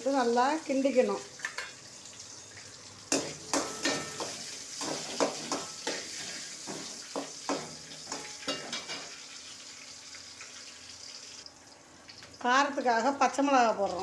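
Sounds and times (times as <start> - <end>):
onions sizzling in hot oil: 0.0 - 14.0
metal spoon scraping a pan: 3.1 - 9.2.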